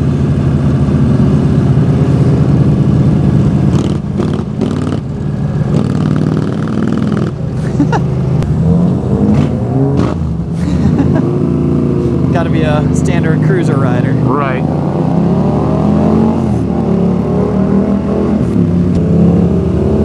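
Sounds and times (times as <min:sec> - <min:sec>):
motorcycle engine running: 0:00.0 - 0:08.5
road and wind noise: 0:00.0 - 0:20.0.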